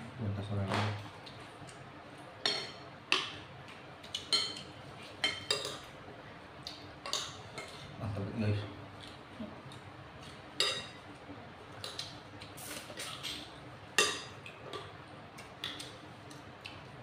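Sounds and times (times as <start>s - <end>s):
cutlery clinking on plates: 2.4s - 3.4s, 4.1s - 5.9s, 10.6s - 11.0s, 13.0s - 14.9s.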